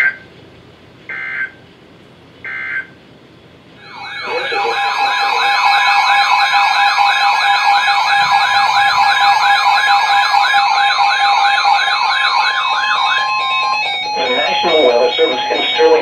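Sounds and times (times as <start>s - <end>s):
steady alarm tones: 3.8s - 16.0s
warbling siren tones: 3.8s - 16.0s.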